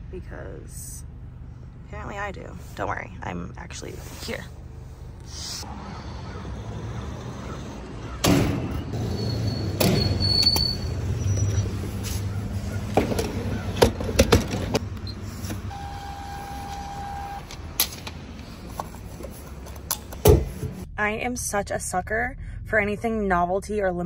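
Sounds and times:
low hum: 0:00.0 - 0:06.9
long electronic beep: 0:15.7 - 0:17.4.

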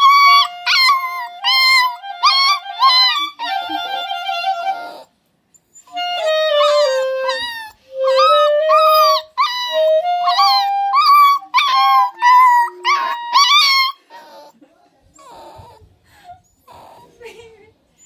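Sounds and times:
puppy howling: 0:00.0 - 0:05.1, 0:05.8 - 0:14.4
clarinet playing slow notes: 0:05.9 - 0:11.4.

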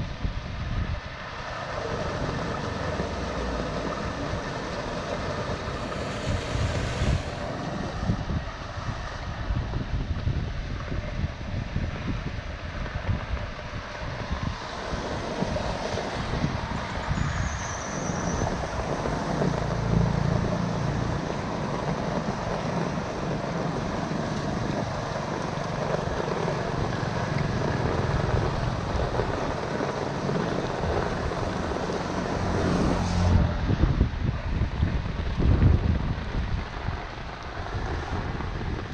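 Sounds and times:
wind rumble on microphone: 0:00.0 - 0:38.9
rain falling on flooded gutter: 0:01.2 - 0:08.1, 0:14.3 - 0:33.3, 0:34.6 - 0:38.9.

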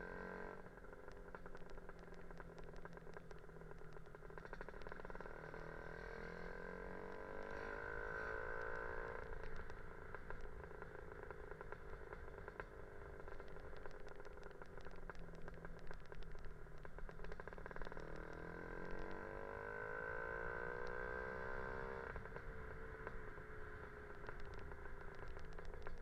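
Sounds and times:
rapid ticking rattle: 0:01.0 - 0:05.3, 0:12.6 - 0:18.4.

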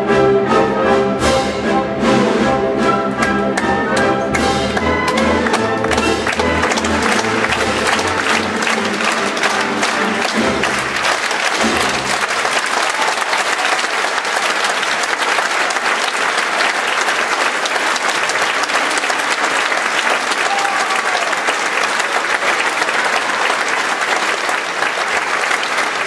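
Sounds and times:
audience applauding: 0:03.2 - 0:26.0.

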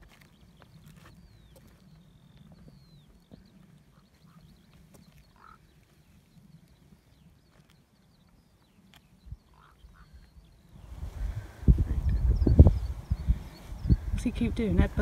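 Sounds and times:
distant low bird calls: 0:00.0 - 0:14.8
small birds chirping: 0:00.0 - 0:15.0
wind buffeting microphone: 0:09.2 - 0:15.0.

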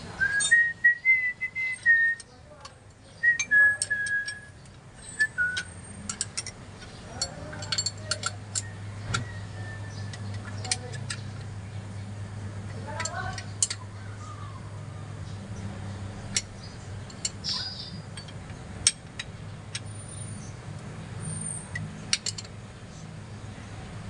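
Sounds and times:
person whistling a tune: 0:00.2 - 0:02.2, 0:03.2 - 0:04.5
metallic clicks of hand tools: 0:05.5 - 0:09.3, 0:10.1 - 0:11.5, 0:12.7 - 0:13.8, 0:17.1 - 0:19.9, 0:21.7 - 0:22.6.

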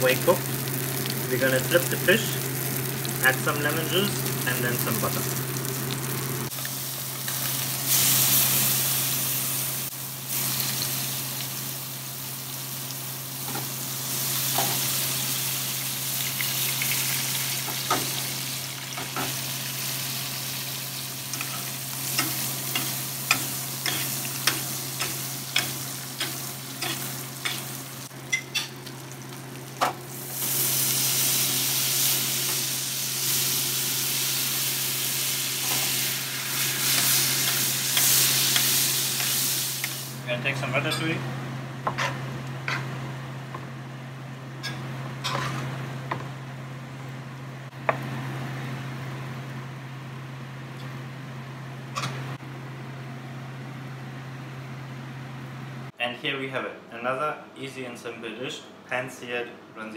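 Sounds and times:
crackles and pops of frying: 0:00.0 - 0:40.2
fish sizzling in a frying pan: 0:00.0 - 0:40.2.

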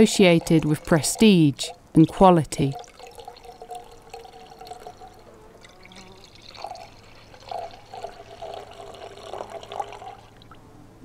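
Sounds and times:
wine pouring into a glass: 0:00.0 - 0:10.6
faint low hum: 0:00.0 - 0:11.0.

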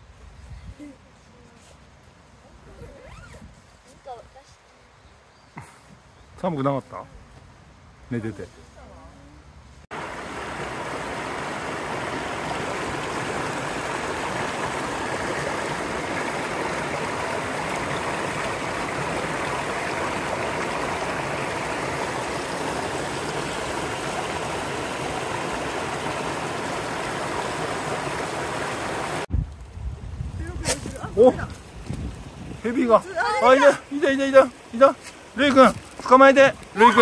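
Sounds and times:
stream rushing over rocks: 0:09.9 - 0:29.3, 0:30.8 - 0:37.0.

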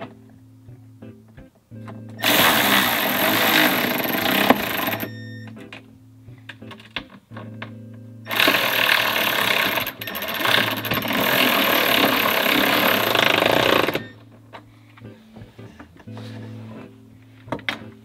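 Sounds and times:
cordless driver driving bolt: 0:02.2 - 0:05.1.

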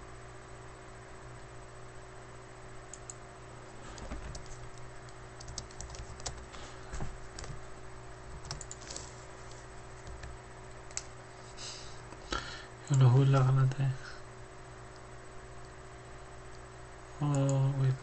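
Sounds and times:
low electrical hum: 0:00.0 - 0:18.0
typing on computer keyboard: 0:04.0 - 0:04.8, 0:05.4 - 0:06.5, 0:07.3 - 0:07.6, 0:08.4 - 0:09.1, 0:10.0 - 0:11.0.

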